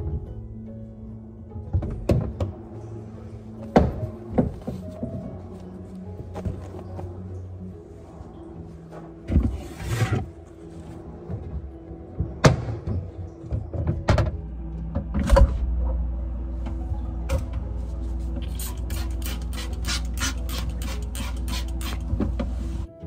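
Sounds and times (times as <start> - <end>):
steady low hum: 0.0 - 22.9
trigger spray bottle squirting: 18.4 - 22.1.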